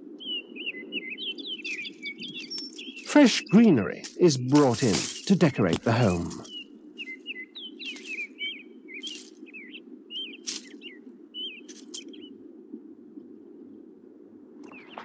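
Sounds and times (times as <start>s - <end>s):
small birds chirping: 0.2s - 12.4s, 14.6s - 15.0s.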